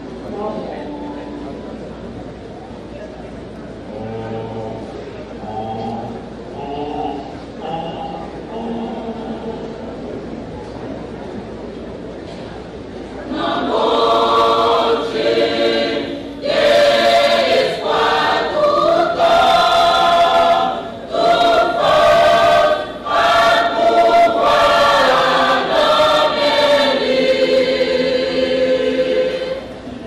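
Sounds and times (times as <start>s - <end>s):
large choir singing: 3.9s - 9.9s, 13.3s - 30.0s.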